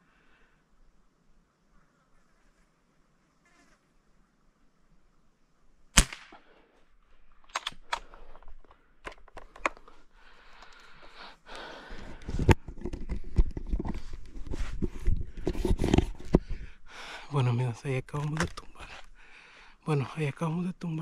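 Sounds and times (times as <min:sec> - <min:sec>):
air rifle shot crack: 0:05.9 - 0:06.6
small clicks: 0:07.4 - 0:11.1
rustling through brush: 0:09.8 - 0:16.9.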